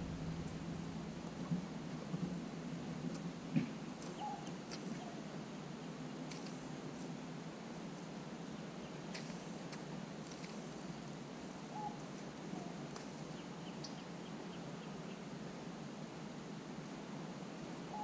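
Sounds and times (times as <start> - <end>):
outdoor background hum: 0.0 - 18.0
bird chirps: 4.1 - 5.2.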